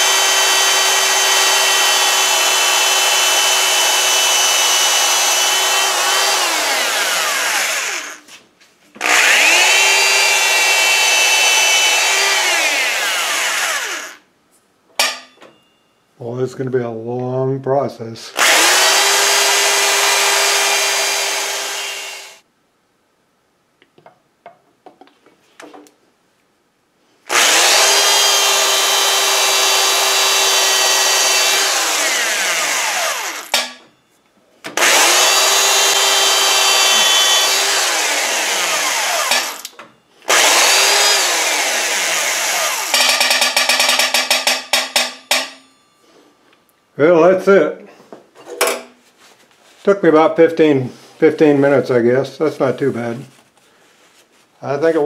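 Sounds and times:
small drill motor whining: 0.0s - 8.2s, 9.0s - 14.2s, 18.4s - 22.4s, 27.3s - 33.8s, 34.8s - 43.9s.

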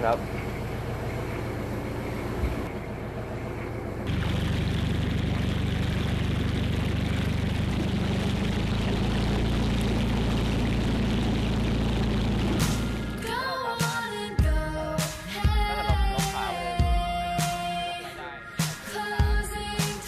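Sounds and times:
boat engine running: 0.0s - 13.4s
water churning and rushing: 4.1s - 13.0s.

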